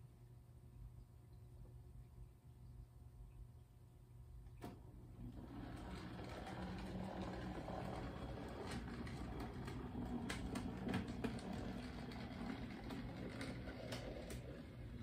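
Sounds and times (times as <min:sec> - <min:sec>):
model train motor hum: 0:05.3 - 0:15.0.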